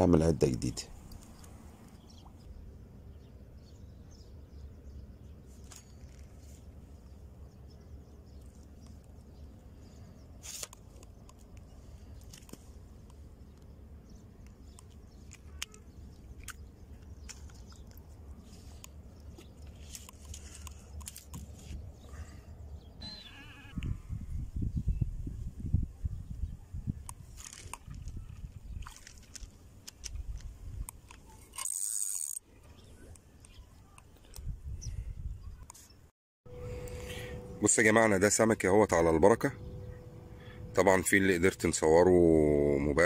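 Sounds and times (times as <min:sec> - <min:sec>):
handling clicks and crackles: 0:10.4 - 0:22.0, 0:27.0 - 0:32.4.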